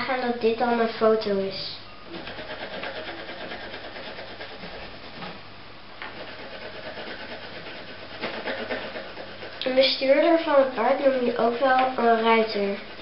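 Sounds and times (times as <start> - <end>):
pencil shading on paper: 2.2 - 5.1, 6.1 - 13.0.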